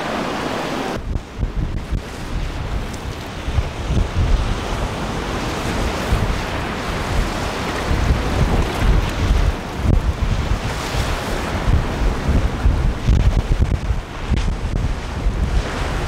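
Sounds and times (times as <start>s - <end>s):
boat running at speed: 0.0s - 16.0s
rushing water and waves: 0.0s - 16.0s
wind buffeting microphone: 0.0s - 16.0s.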